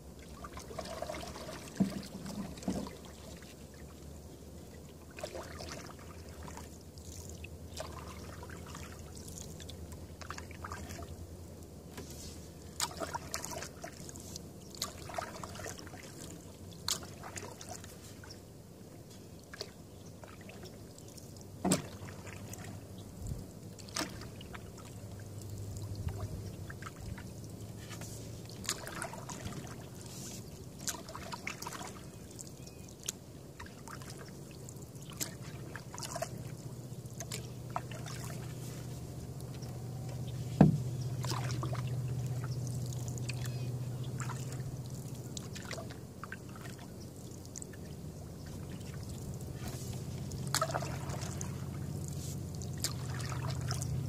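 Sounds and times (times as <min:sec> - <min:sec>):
low steady hum: 0:00.0 - 0:54.0
water dripping off paddle: 0:23.8 - 0:29.8, 0:30.7 - 0:47.8, 0:48.4 - 0:54.0.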